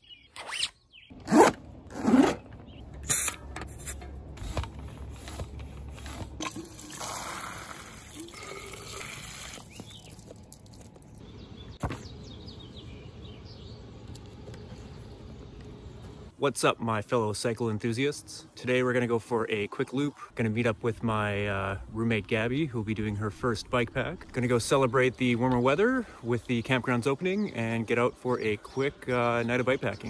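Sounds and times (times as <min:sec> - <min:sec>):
jacket zipper pulled up: 0:00.4 - 0:02.5
hose water running into bottles: 0:04.4 - 0:11.2.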